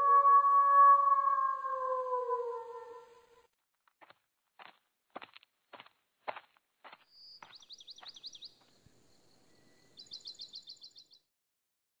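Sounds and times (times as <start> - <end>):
songbird singing: 7.0 - 11.3.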